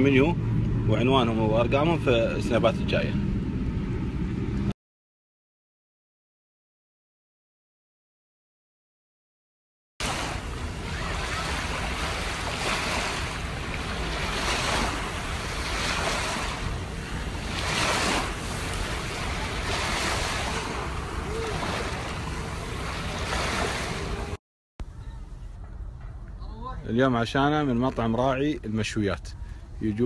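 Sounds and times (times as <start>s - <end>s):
sea waves breaking on beach: 10.0s - 24.4s.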